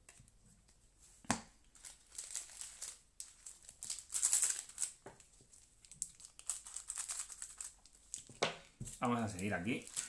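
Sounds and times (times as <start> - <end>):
crinkly foil wrapper rustling: 1.8 - 8.4, 9.0 - 10.0.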